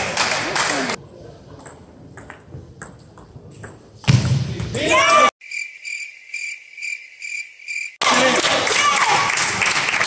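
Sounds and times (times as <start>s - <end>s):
person shouting: 4.8s - 5.3s
high even chirping: 5.4s - 8.0s.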